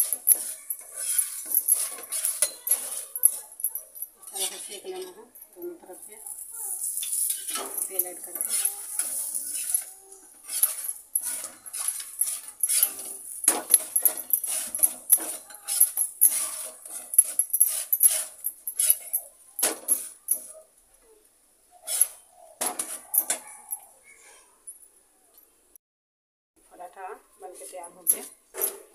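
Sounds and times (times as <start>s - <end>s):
metal spatula scraping griddle: 0.0s - 3.6s, 6.6s - 19.1s, 21.8s - 23.1s
oil sizzling: 6.5s - 7.8s.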